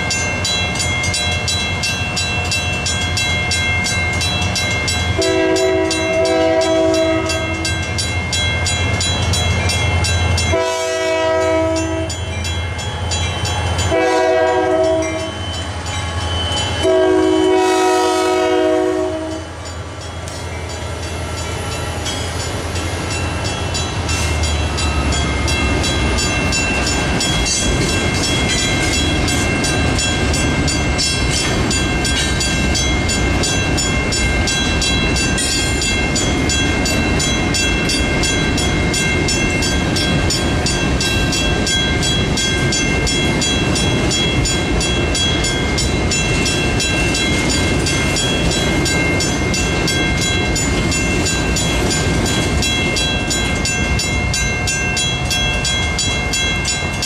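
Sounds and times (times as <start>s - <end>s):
crossing bells ringing: 0.0s - 57.0s
train rumbling past: 0.0s - 57.0s
locomotive horn blasts: 5.2s - 7.7s, 10.5s - 12.2s, 13.9s - 15.4s, 16.8s - 19.5s.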